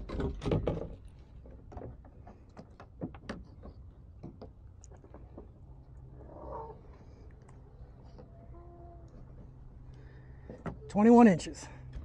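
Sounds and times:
knocks and clatter: 0.0s - 5.5s.

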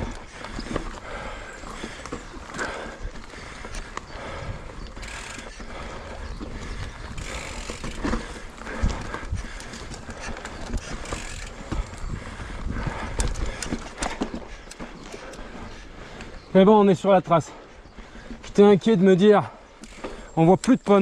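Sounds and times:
bike rattling and knocking: 0.0s - 16.2s, 18.0s - 21.0s
tyres rolling over rough ground: 0.0s - 17.5s
wind rumble on microphone: 4.0s - 5.1s, 5.7s - 14.4s.

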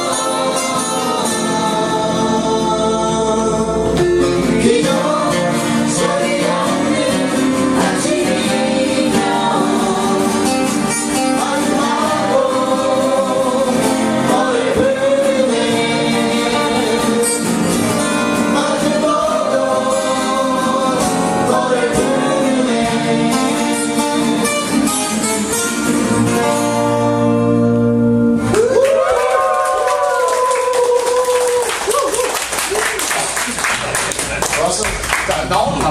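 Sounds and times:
people singing folk song: 0.0s - 27.5s
strummed acoustic guitars: 0.0s - 28.6s.

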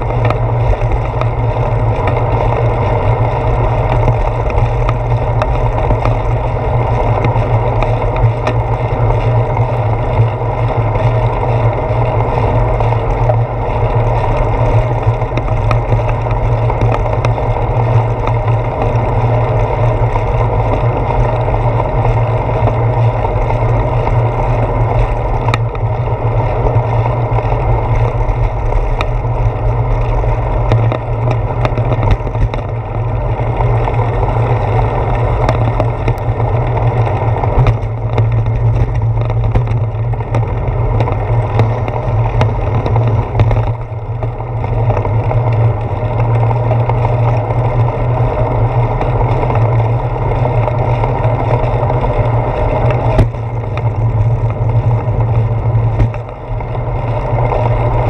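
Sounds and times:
sharp clicks and knocks: 0.0s - 2.8s, 3.8s - 10.3s, 30.6s - 33.0s, 35.4s - 47.4s, 52.7s - 56.4s
bicycle road rumble: 0.0s - 58.0s
wind: 0.0s - 58.0s.

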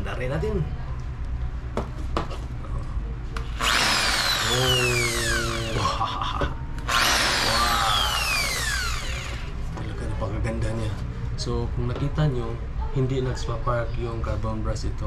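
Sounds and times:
drill motor whine: 3.6s - 6.0s, 6.9s - 9.6s.

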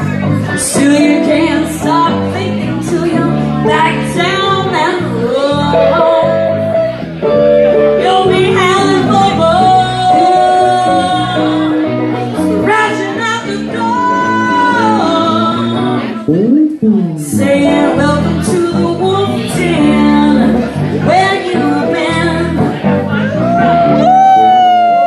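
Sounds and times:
woman singing into microphone: 0.0s - 7.0s, 7.9s - 25.0s
bass guitar: 0.0s - 25.0s
electric guitar: 0.0s - 25.0s.

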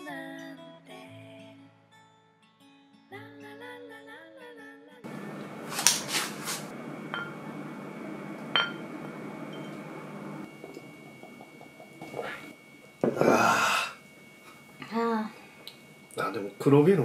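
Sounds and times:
glass bottles clinking: 7.1s - 7.4s, 8.5s - 8.9s.

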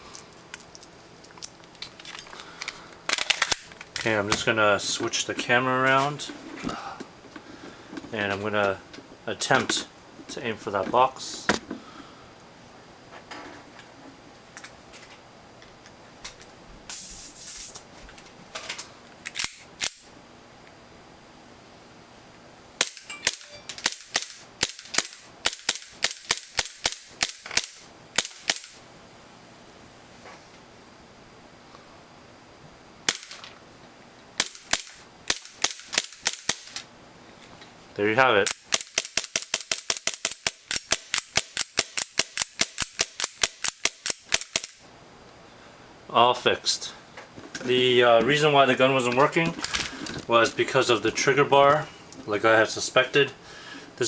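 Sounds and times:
gas hiss: 16.9s - 17.8s.

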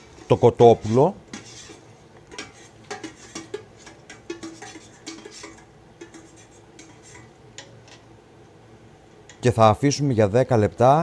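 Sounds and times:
ladle scraping metal pot: 0.0s - 8.1s.

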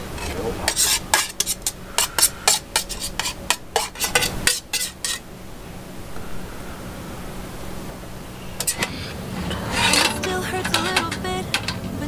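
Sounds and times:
utensil scraping metal pan: 0.2s - 5.2s, 9.5s - 11.8s.

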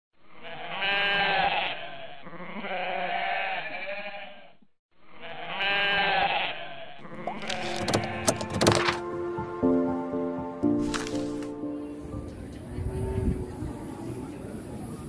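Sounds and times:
goat bleating: 0.3s - 8.4s.

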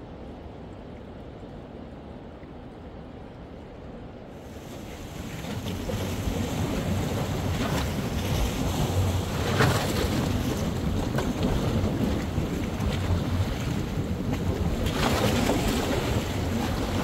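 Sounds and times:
water splashing surges: 4.4s - 17.0s
wind buffeting microphone: 4.4s - 17.0s.

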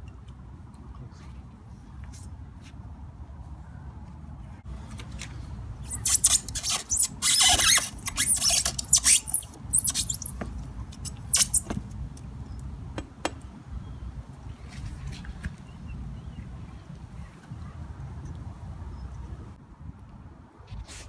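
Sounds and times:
blade scraping rubber tyre: 5.8s - 11.8s.

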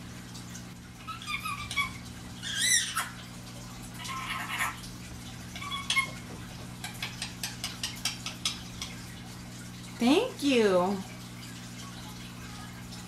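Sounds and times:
parakeet calling: 1.0s - 3.2s, 4.0s - 4.8s, 5.5s - 9.0s.

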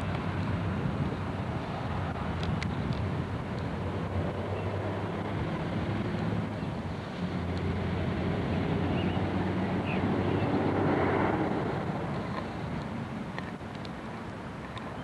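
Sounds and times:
wind buffeting microphone: 0.0s - 15.0s
faint clicks: 2.4s - 3.7s, 12.1s - 15.0s.

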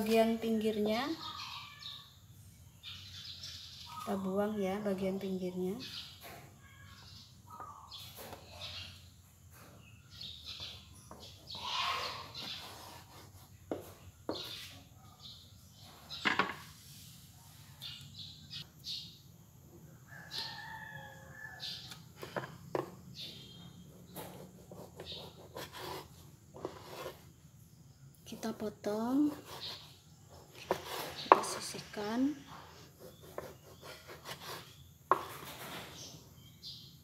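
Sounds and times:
knife sawing through bread: 12.0s - 13.5s, 24.2s - 27.2s, 29.3s - 30.0s, 33.0s - 34.8s.

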